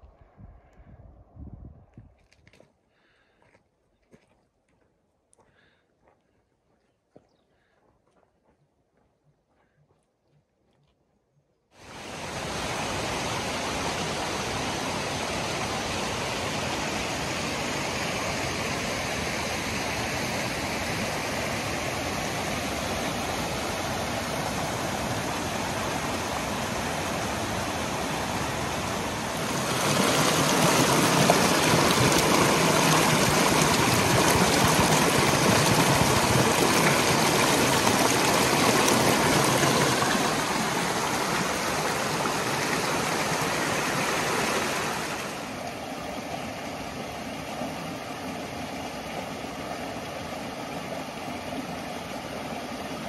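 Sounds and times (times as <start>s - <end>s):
creek rushing over rocks: 11.8s - 53.0s.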